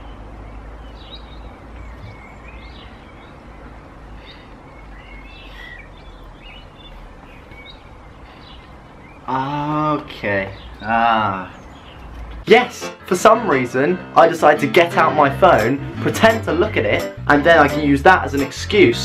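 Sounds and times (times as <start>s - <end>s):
small birds chirping: 0.0s - 12.5s.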